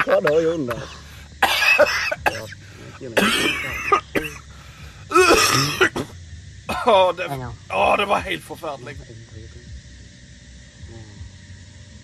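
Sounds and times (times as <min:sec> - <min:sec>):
person coughing: 0:01.4 - 0:02.6, 0:03.2 - 0:04.5, 0:05.1 - 0:06.1.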